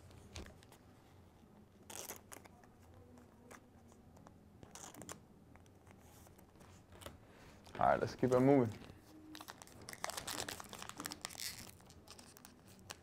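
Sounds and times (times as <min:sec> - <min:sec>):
plastic card sleeve rustling: 0:05.8 - 0:13.0.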